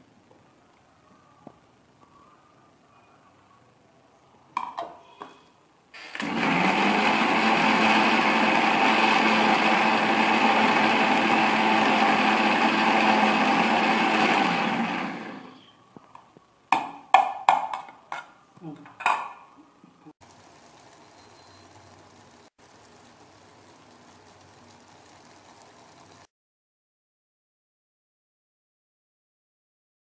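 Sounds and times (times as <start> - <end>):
mixer grinder running: 6.0 - 15.7.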